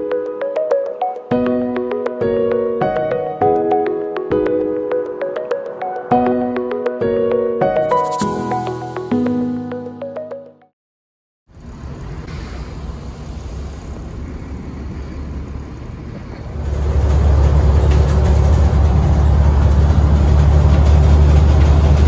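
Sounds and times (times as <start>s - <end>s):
bus idling hum: 11.5s - 22.0s
diesel bus engine drone: 11.5s - 22.0s
road noise: 11.5s - 22.0s.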